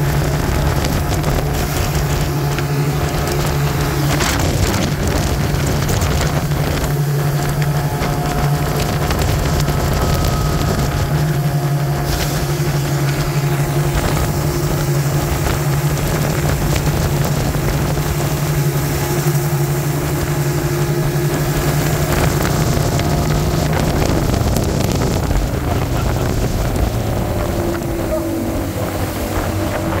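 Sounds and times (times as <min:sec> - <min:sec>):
boat engine humming: 0:00.0 - 0:30.0
rushing water: 0:00.0 - 0:30.0
wind on microphone: 0:00.0 - 0:30.0.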